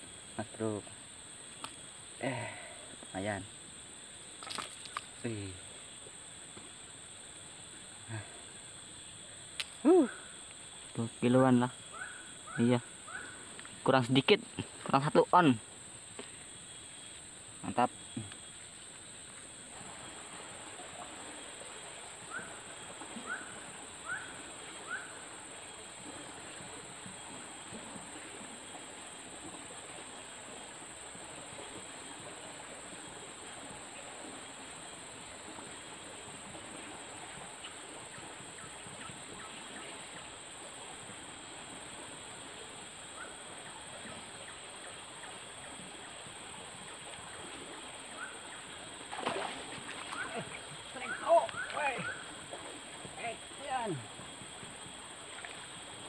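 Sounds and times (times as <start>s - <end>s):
steady background hiss: 0.0s - 56.0s
river water rushing: 19.6s - 38.5s, 39.3s - 56.0s.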